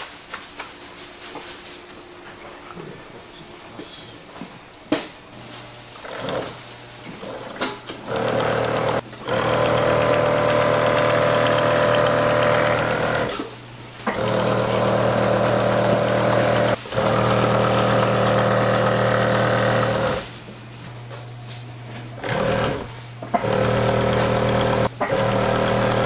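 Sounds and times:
sewing machine stitching: 6.0s - 6.6s, 7.2s - 13.5s, 14.1s - 20.3s, 22.2s - 26.0s.

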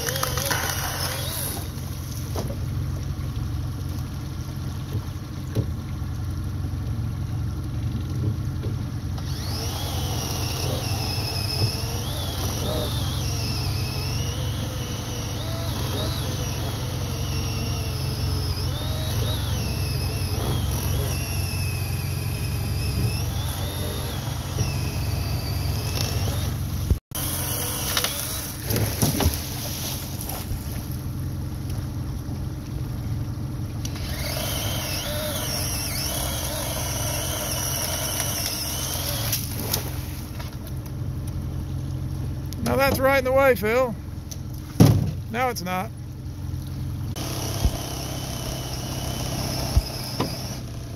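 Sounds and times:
chainsaw cutting wood: 0.0s - 1.9s, 9.2s - 30.5s, 33.8s - 40.4s, 47.1s - 50.9s
outboard motor hum: 0.0s - 50.9s.

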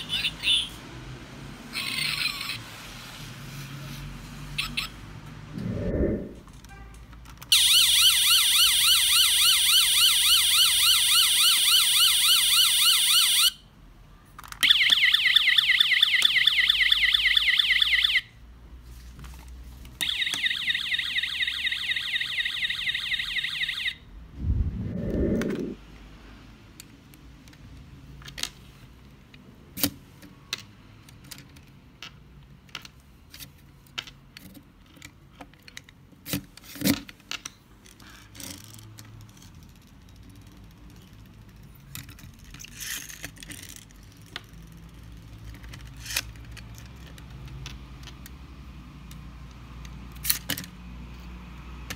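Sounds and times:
toy siren warbling: 7.5s - 13.6s, 20.0s - 24.0s
plastic toy parts clicking: 14.3s - 15.0s, 29.3s - 48.4s.

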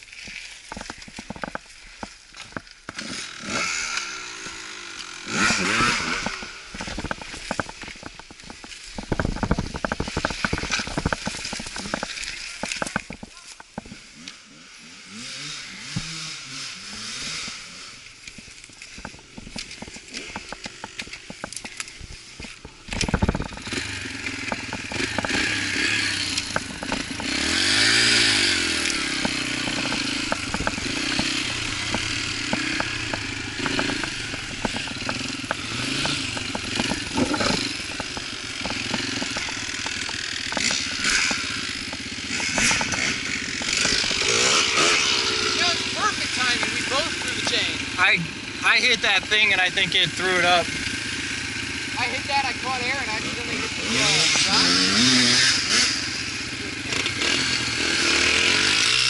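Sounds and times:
dirt bike engine revving: 0.7s - 59.0s
scattered clicks: 16.9s - 47.8s.

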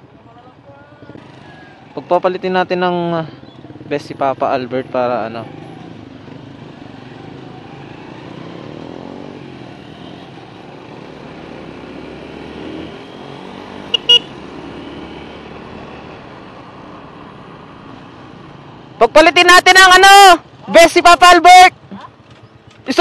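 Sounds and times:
road noise: 0.0s - 23.0s
motorcycle engine revving: 0.9s - 2.2s, 3.0s - 19.0s
horn beeps: 13.2s - 14.4s.

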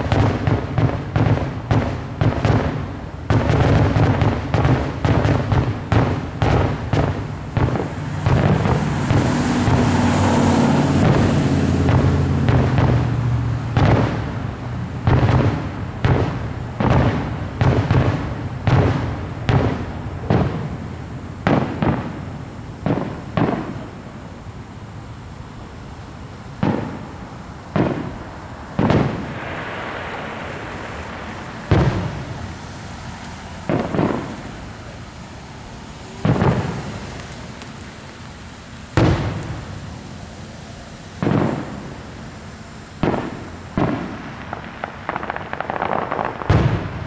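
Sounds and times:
fireworks shells bursting: 0.0s - 14.3s, 26.5s - 47.0s.

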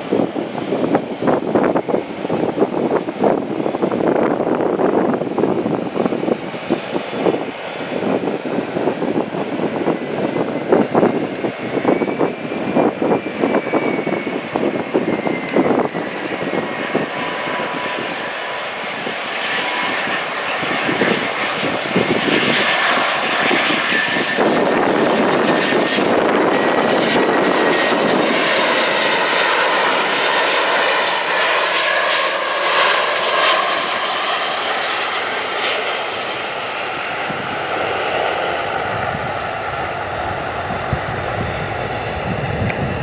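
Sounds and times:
jet engine roar with whine: 0.0s - 43.0s.

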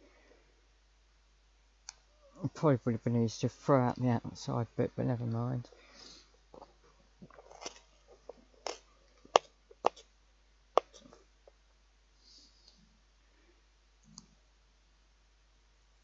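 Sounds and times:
dry onion skin crackling: 7.2s - 10.1s.

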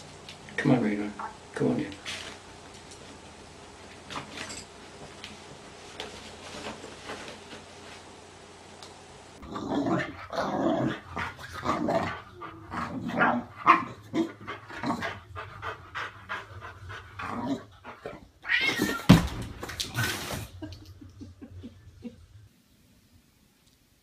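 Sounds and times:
dog growling: 9.4s - 18.3s
cat yowling: 18.4s - 19.2s.

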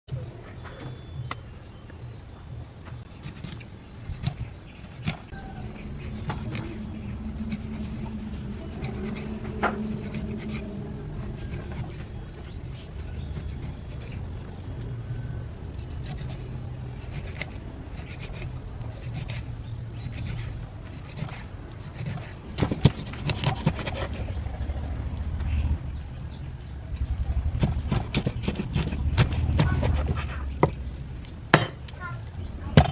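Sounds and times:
steady low hum: 0.1s - 32.9s
cleaver chopping on wooden board: 31.5s - 31.8s.

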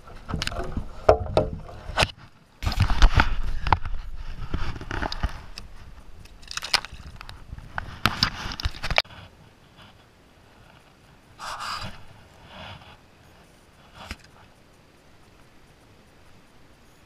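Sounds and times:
fish handling knocks and rubbing: 0.1s - 3.9s.

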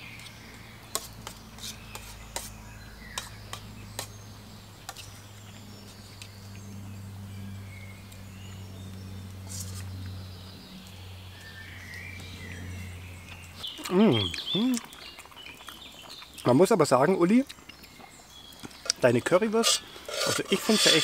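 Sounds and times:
steady low hum: 0.0s - 15.3s
birds chirping faintly: 0.0s - 21.0s
cutlery scraping metal pots: 19.6s - 21.0s.

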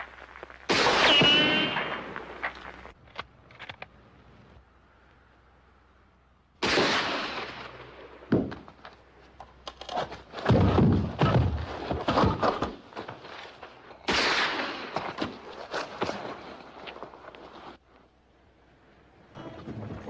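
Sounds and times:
heavy thuds and sharp cracks: 0.0s - 2.9s, 6.6s - 9.0s, 9.7s - 16.4s
rifle shots echoing: 0.7s - 2.4s, 6.6s - 8.4s, 14.1s - 15.0s.

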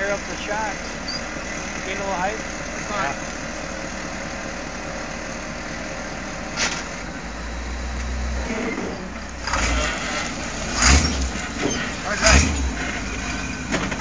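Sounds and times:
truck engine running low: 0.0s - 14.0s.

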